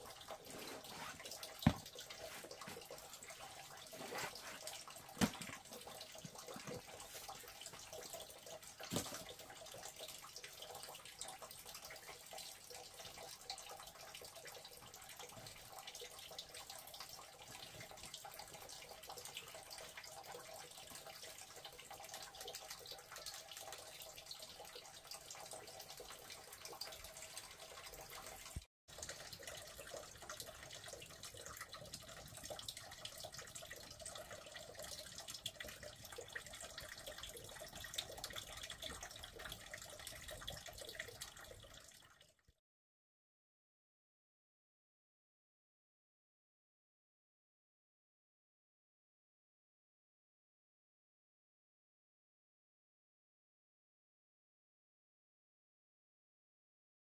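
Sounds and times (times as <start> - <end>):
water trickling and splashing: 0.0 - 42.5.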